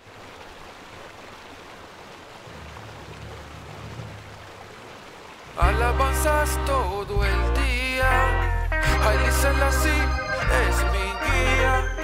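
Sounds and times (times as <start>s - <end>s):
waterfall rushing into pool: 0.0s - 6.4s.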